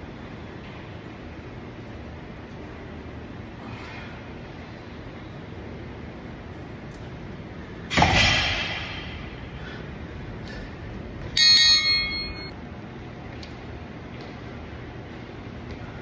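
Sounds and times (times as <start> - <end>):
dumbbells dropped on rubber floor: 7.9 - 9.1
metal striking metal: 11.4 - 12.5.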